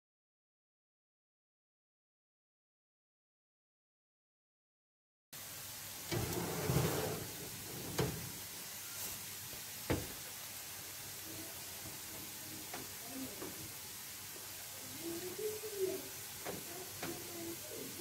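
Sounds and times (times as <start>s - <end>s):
steady hiss: 5.4s - 18.0s
scraping rustle: 6.1s - 8.3s.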